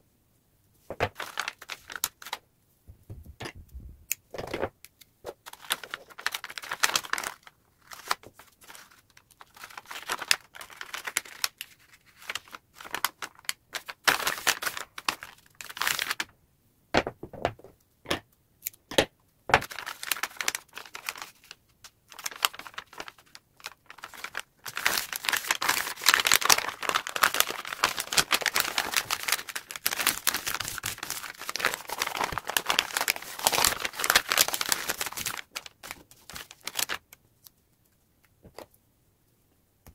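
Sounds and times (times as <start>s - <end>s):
wrapping paper crinkling: 1.0s - 2.4s, 5.4s - 16.2s, 19.6s - 37.2s.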